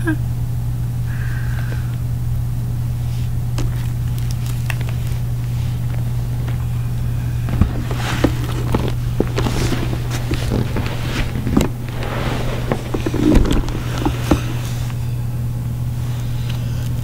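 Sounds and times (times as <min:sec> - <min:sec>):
low hum: 0:00.0 - 0:17.0
rustling and knocks near microphone: 0:07.5 - 0:15.0.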